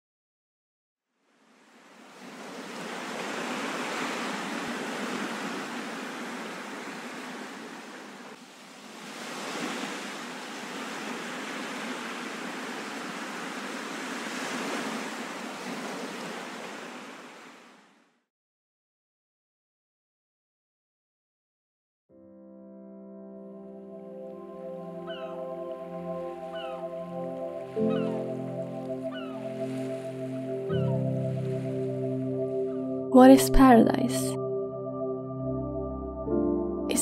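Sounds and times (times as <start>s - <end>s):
ocean waves breaking: 1.3s - 18.0s, 24.3s - 33.6s.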